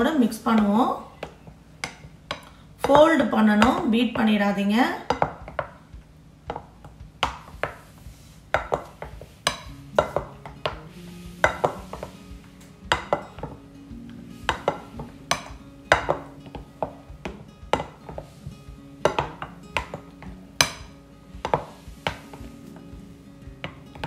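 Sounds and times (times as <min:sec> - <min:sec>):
quiet background music: 0:00.0 - 0:24.0
spatula scraping and knocking bowl: 0:06.5 - 0:24.0.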